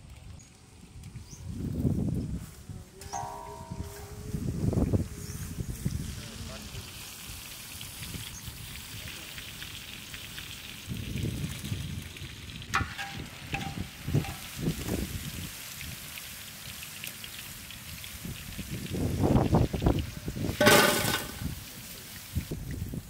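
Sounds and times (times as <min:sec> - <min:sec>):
chicken deep-frying in oil: 0:00.0 - 0:04.0, 0:04.7 - 0:23.0
sharp clink: 0:03.0 - 0:04.3.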